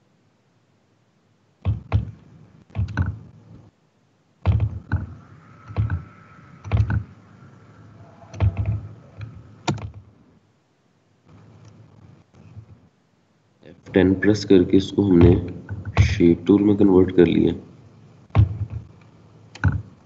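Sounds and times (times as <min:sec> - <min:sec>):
keyboard and mouse clicks: 0:01.6 - 0:03.3, 0:04.5 - 0:07.1, 0:08.3 - 0:10.0, 0:18.4 - 0:20.0.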